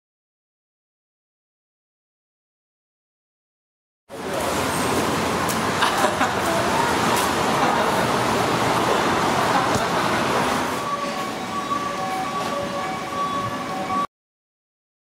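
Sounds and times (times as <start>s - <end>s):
rushing rumbling background noise: 4.1s - 11.4s.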